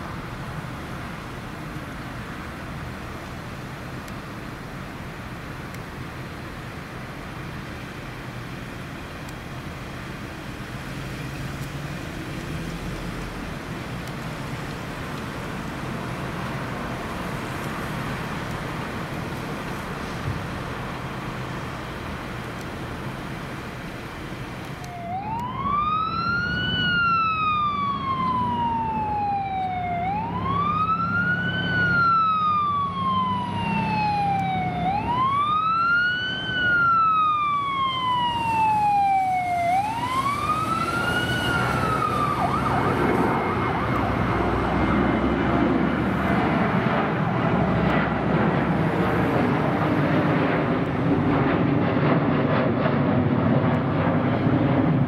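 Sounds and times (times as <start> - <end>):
siren wailing: 24.8 - 50.4
loud engine rush: 25.2 - 55.0.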